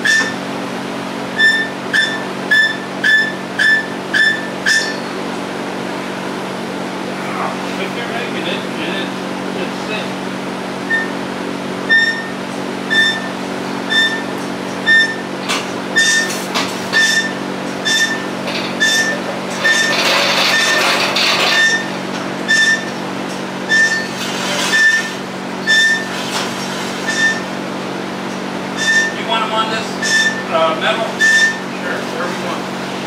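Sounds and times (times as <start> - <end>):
machine hum: 0.0 - 33.0
electronic warning beeper: 1.4 - 5.1, 10.9 - 11.2, 11.9 - 15.2, 23.7 - 26.1.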